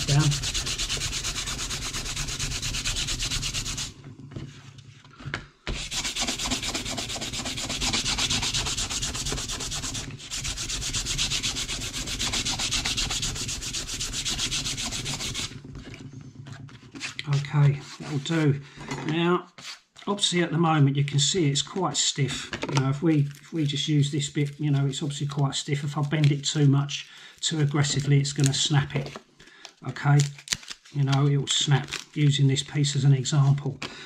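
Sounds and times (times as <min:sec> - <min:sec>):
mesh abrasive sanding bark: 0:00.0 - 0:03.9, 0:05.7 - 0:15.6.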